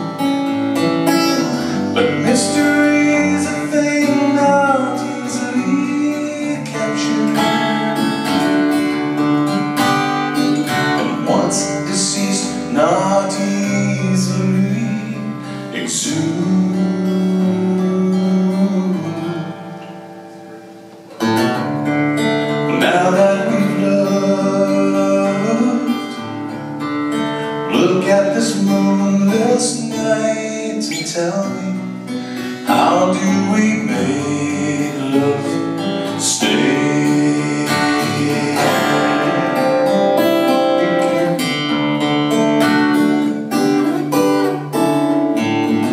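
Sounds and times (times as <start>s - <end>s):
acoustic guitar strumming: 0.0s - 45.9s
man singing: 1.1s - 8.9s, 10.6s - 20.0s, 22.5s - 26.3s, 27.4s - 41.5s, 45.4s - 45.9s.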